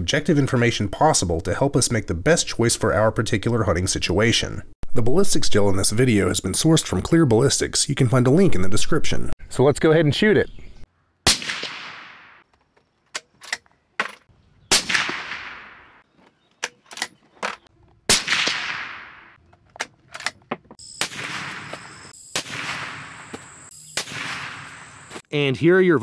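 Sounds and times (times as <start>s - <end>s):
suppressed rifle shots: 11.3s - 12.4s, 14.7s - 16.0s, 18.1s - 19.4s, 21.0s - 25.0s.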